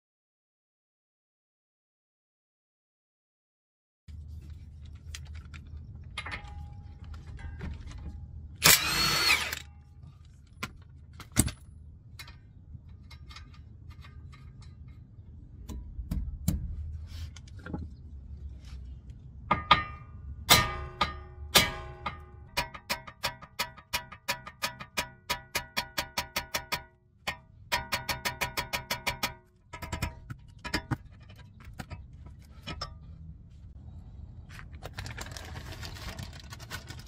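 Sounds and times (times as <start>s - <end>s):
clinks of tools and parts: 6.1s - 15.1s
hammer striking steel: 19.5s - 30.9s.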